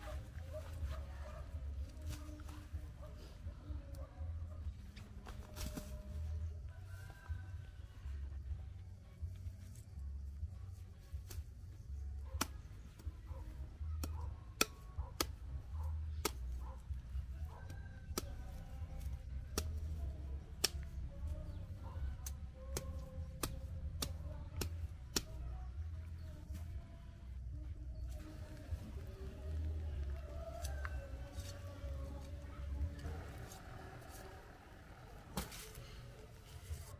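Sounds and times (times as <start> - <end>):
machete chopping: 35.3 - 35.8.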